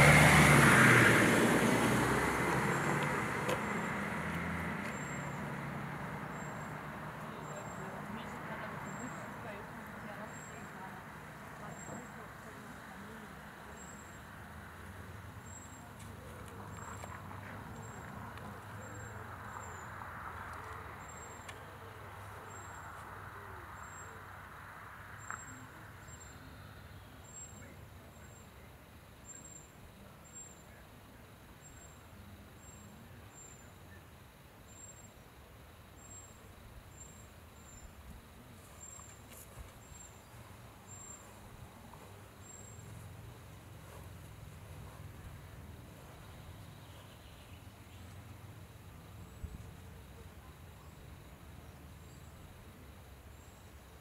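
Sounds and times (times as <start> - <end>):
low steady rumble: 39.7 - 50.5.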